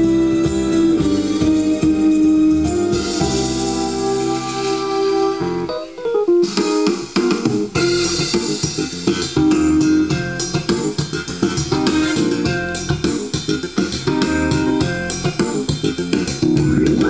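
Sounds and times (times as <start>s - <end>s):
keyboard demo song with rhythm backing: 0.0s - 17.0s.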